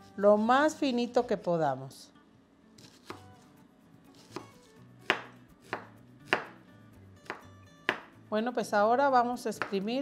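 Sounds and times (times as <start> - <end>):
knife chopping onion: 2.8 - 3.4, 4.1 - 6.6, 7.2 - 8.2, 9.5 - 10.0.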